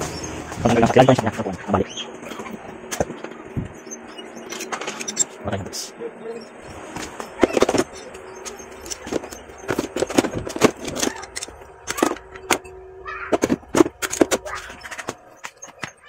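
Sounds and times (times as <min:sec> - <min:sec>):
metal tools clinking and rattling: 0:04.4 - 0:05.4, 0:07.4 - 0:12.7.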